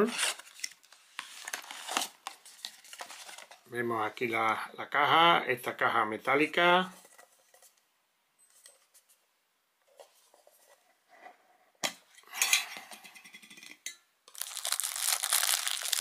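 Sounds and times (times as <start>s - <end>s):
plastic wrapping crinkling: 14.3s - 16.0s.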